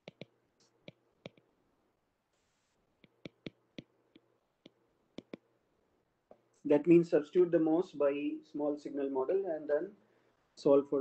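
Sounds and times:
stylus tapping on glass screen: 0:00.0 - 0:01.5, 0:03.0 - 0:05.4.

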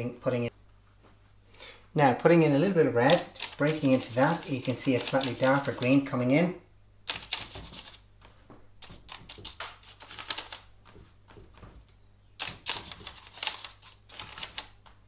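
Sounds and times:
paintbrush dabbing and scraping: 0:03.1 - 0:06.0, 0:07.1 - 0:10.2.

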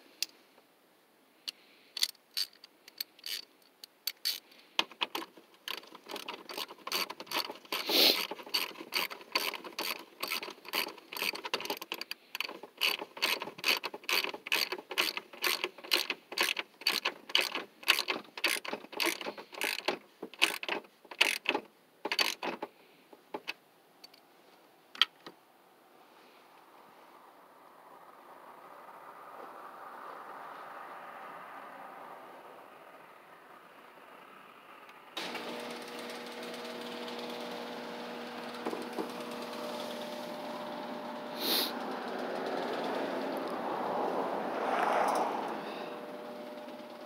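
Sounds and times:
ratchet wrench clicking: 0:01.5 - 0:04.4, 0:05.0 - 0:22.7.

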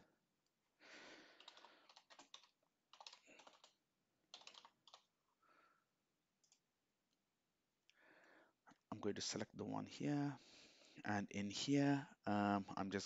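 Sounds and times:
faint typing on keyboard: 0:01.2 - 0:05.1.

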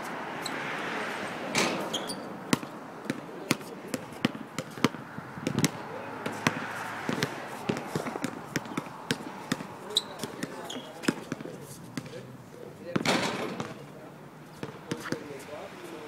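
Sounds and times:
basketball bouncing on hard court: 0:01.9 - 0:12.2, 0:12.9 - 0:13.8, 0:14.6 - 0:15.2.

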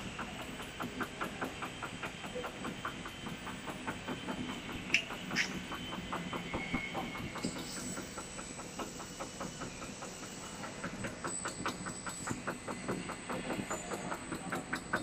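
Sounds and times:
machine rollers running: 0:00.0 - 0:15.0
sharp clicks: 0:04.9 - 0:05.7.

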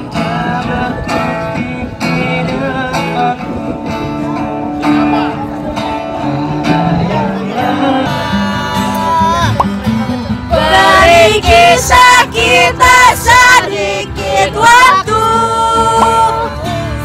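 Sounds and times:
acoustic guitar: 0:00.0 - 0:17.0.

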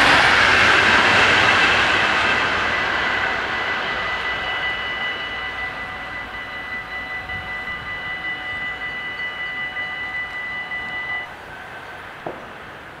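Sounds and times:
level crossing bells ringing: 0:01.3 - 0:11.5.

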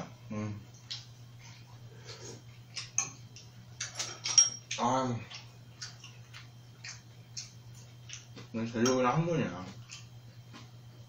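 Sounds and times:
steady low hum: 0:00.0 - 0:11.0
utensils clinking on ceramic bowls: 0:03.8 - 0:05.4.

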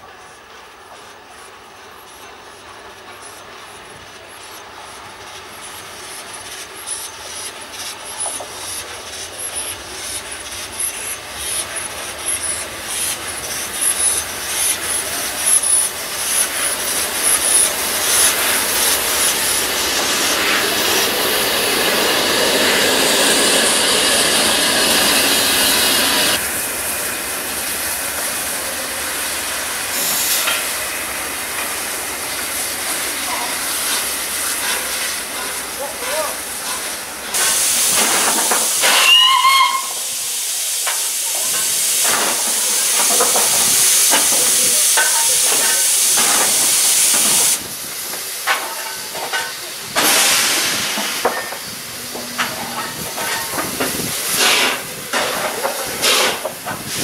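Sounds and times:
loud steam hiss: 0:00.0 - 0:57.0
wheels clicking on rails: 0:40.8 - 0:57.0.

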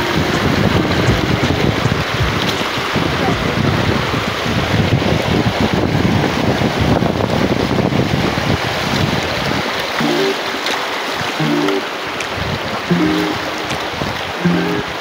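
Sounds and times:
short music notes: 0:00.0 - 0:01.6, 0:10.0 - 0:10.6, 0:11.4 - 0:12.2, 0:12.9 - 0:15.0
wind rumbling on microphone: 0:00.0 - 0:10.0, 0:12.0 - 0:15.0
river water rushing over rocks: 0:00.0 - 0:15.0.

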